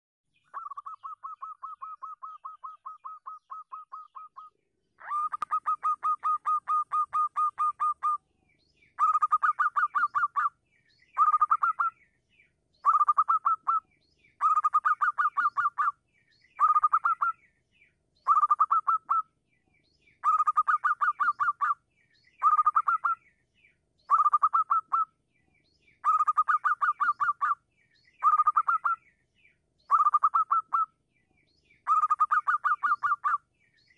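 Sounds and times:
dove cooing: 0:00.6 - 0:08.2.

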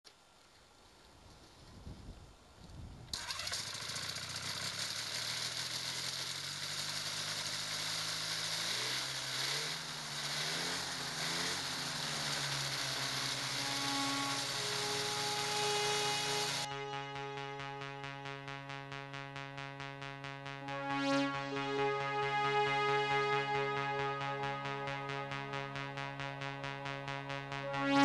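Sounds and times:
engine starting and running: 0:03.1 - 0:16.7.

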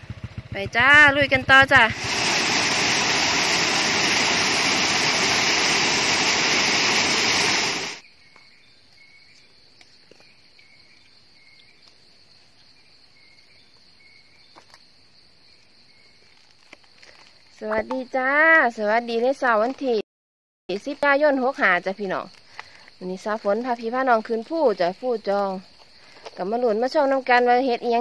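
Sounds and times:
insect chirps: 0:00.1 - 0:20.0, 0:20.7 - 0:28.0
insects buzzing: 0:01.1 - 0:20.0, 0:20.7 - 0:28.0
waterfall rushing over rock: 0:01.8 - 0:08.0.

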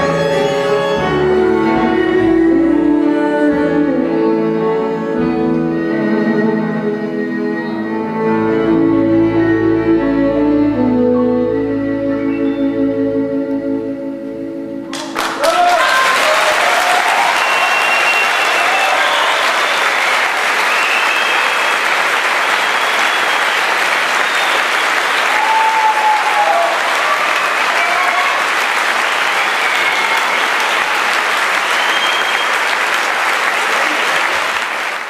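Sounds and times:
audience applauding: 0:14.9 - 0:35.0.

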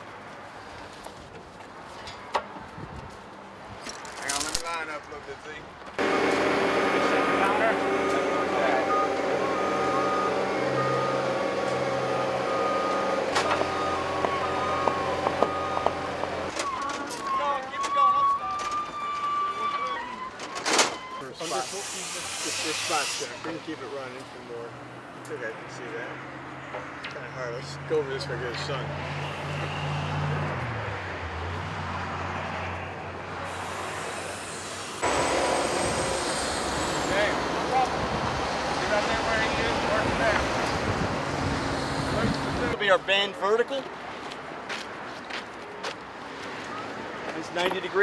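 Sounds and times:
open-air background noise: 0:00.0 - 0:48.0
loader engine running: 0:06.0 - 0:16.5, 0:35.0 - 0:38.7.

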